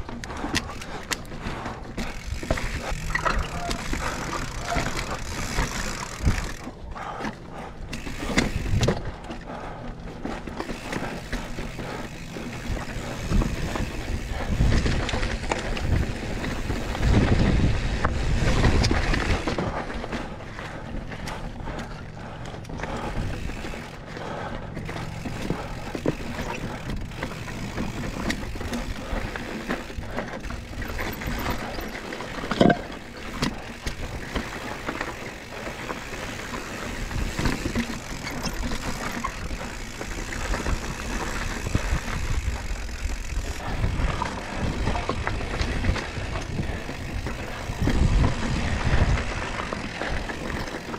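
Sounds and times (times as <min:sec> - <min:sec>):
bike rattling: 0:00.0 - 0:50.9
bike tyres crunching on trail: 0:00.0 - 0:50.9
wind on microphone: 0:40.7 - 0:49.5.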